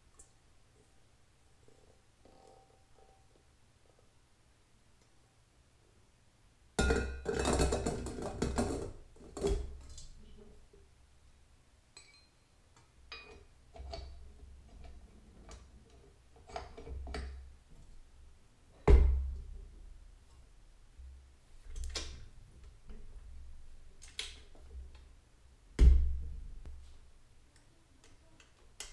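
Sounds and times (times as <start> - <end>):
metal bowl clinking and knocking: 2.2 - 3.3, 6.8 - 8.9, 12.0 - 12.4, 13.1 - 14.0.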